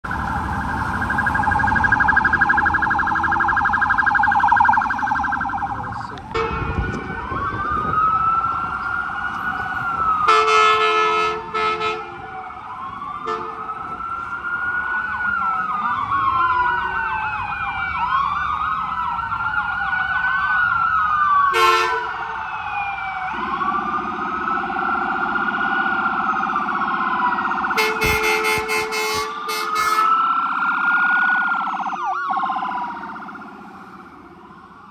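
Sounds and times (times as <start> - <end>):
emergency sirens wailing: 0.0 - 34.9
air horn blaring: 6.3 - 7.0, 10.3 - 12.3, 13.2 - 13.7, 21.5 - 22.1, 27.7 - 30.2.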